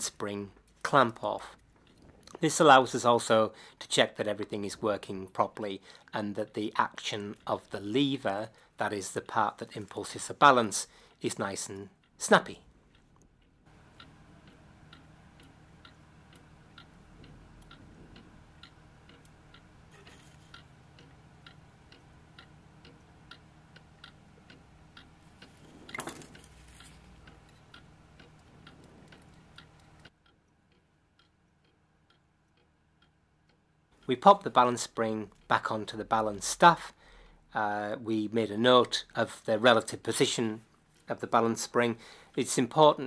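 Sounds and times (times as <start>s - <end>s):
clock ticking: 0.0s - 43.0s
handling knock: 25.9s - 26.5s.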